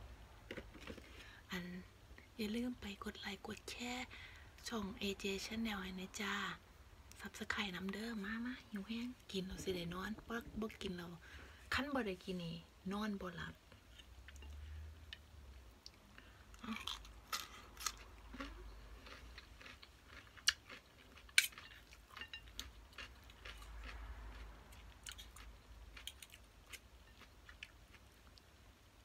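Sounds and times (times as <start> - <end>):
person chewing crunchy food: 0.5 - 1.1, 15.8 - 28.4.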